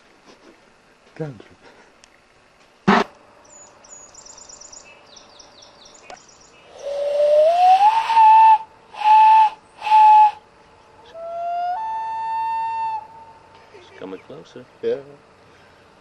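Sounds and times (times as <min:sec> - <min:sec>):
loon wailing: 0:11.1 - 0:13.5.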